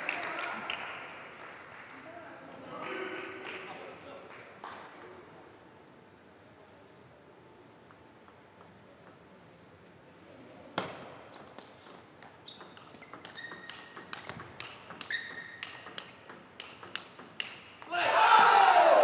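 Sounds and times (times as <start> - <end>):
ball bouncing on table: 10.8 - 17.9
shoes squeaking on floor: 11.3 - 14.4, 15.0 - 15.8
ball clicking off paddles: 11.4 - 18.0.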